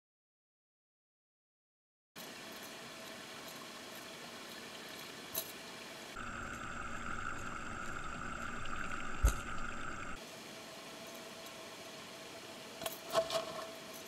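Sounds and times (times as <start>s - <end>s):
aquarium machine hum underwater: 2.8s - 12.6s
whine-like hiss: 6.1s - 14.0s.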